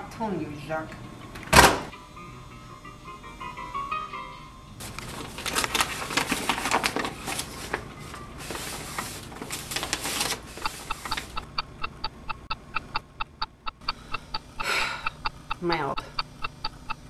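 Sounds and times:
short high-pitched beeps: 0:10.6 - 0:17.0.

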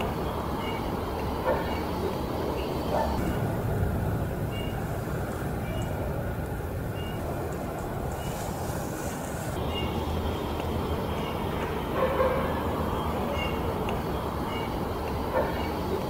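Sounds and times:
faint high bird calls: 0:00.0 - 0:03.5, 0:04.4 - 0:04.9, 0:06.8 - 0:07.4, 0:09.5 - 0:16.0
distant road traffic rumble: 0:00.0 - 0:16.0.

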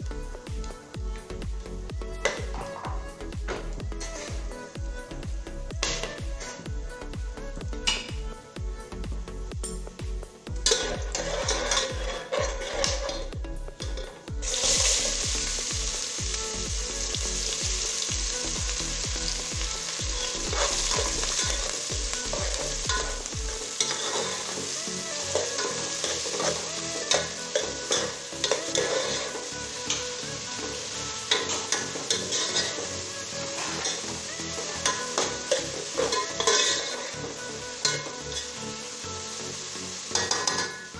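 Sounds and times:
spices and onions sizzling in oil: 0:00.0 - 0:40.9
spoon scraping a metal pot: 0:10.7 - 0:14.8, 0:23.8 - 0:24.5, 0:25.3 - 0:29.4, 0:31.3 - 0:32.9, 0:33.6 - 0:37.1.

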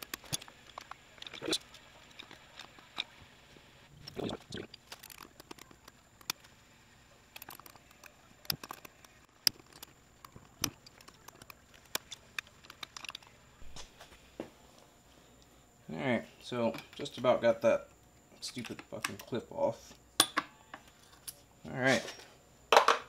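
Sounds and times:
sharp metal clicks: 0:04.0 - 0:06.5, 0:07.3 - 0:13.4.

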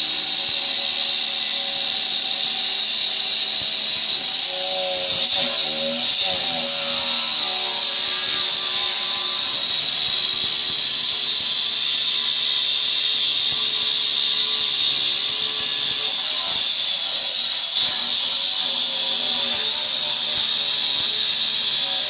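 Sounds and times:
stone saw cutting with high whine: 0:00.0 - 0:22.0.

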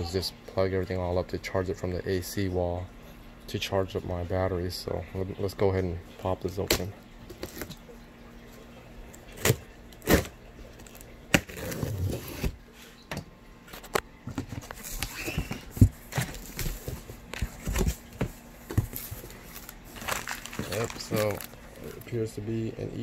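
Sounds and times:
cardboard and plastic wrap rustling: 0:09.3 - 0:12.6, 0:13.7 - 0:22.4
cardboard flaps scraping and knocking: 0:14.3 - 0:19.5.

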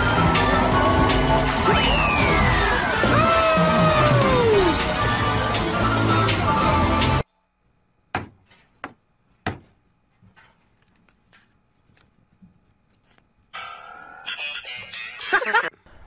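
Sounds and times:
music: 0:00.0 - 0:07.2, 0:13.6 - 0:15.6
tool knocking on phone screen: 0:08.1 - 0:09.8.

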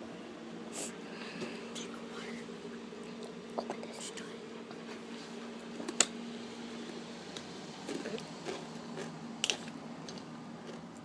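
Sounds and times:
person chewing crunchy chips: 0:07.8 - 0:11.0.

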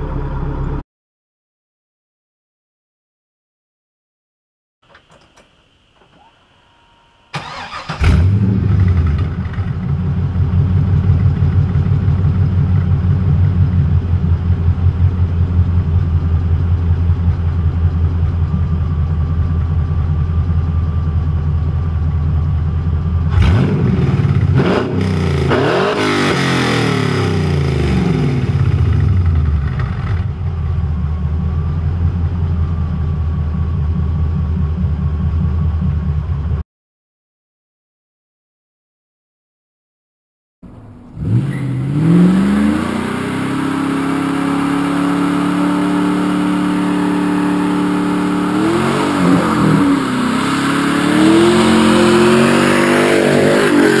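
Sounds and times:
car engine idling and revving: 0:00.0 - 0:00.8, 0:07.3 - 0:36.6, 0:40.6 - 0:54.0.

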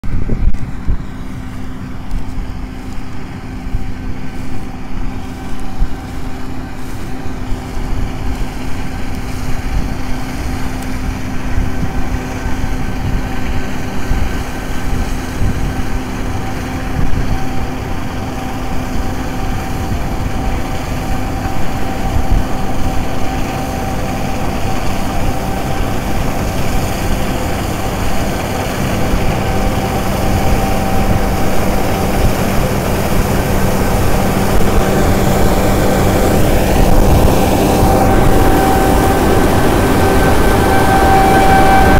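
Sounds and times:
combine harvester drone: 0:00.0 - 0:41.9
steady machine whine: 0:00.0 - 0:41.9.

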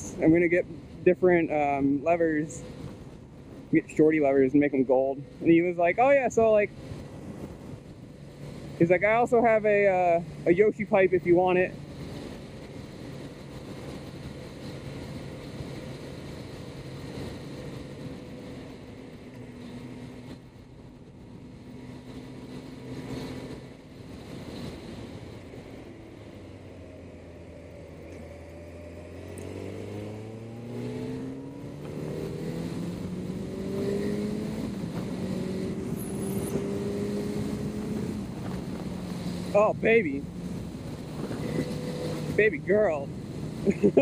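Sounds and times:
motorcycle engine accelerating: 0:11.8 - 0:44.0.

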